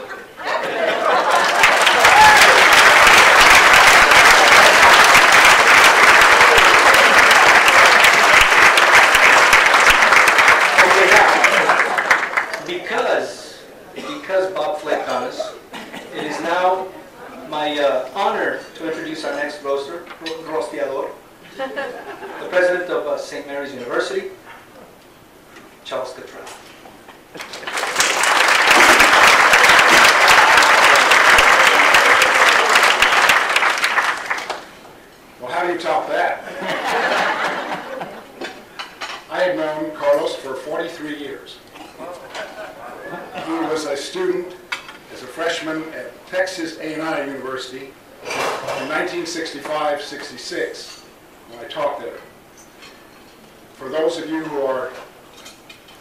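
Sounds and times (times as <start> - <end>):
audience applauding: 0.8 - 12.7, 27.3 - 34.8.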